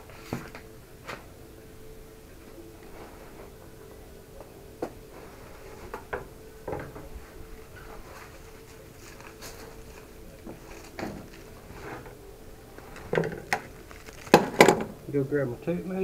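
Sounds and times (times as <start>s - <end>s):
faint steady hum: 0.0s - 16.0s
carpet scuffing and rustling: 6.8s - 12.2s.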